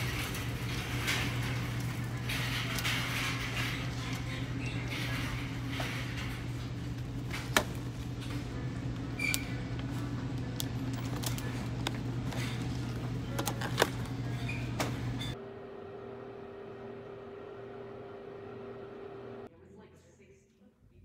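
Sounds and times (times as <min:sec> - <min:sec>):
store background hum: 0:00.0 - 0:20.3
plastic containers clicking and crackling: 0:09.2 - 0:14.3.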